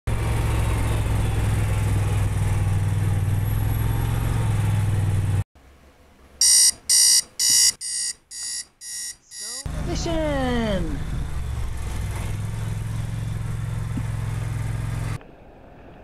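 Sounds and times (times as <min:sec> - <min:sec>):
vehicle engine and road rumble: 0:00.1 - 0:07.2, 0:09.5 - 0:16.0
loud electronic alarm beeps: 0:06.4 - 0:09.7.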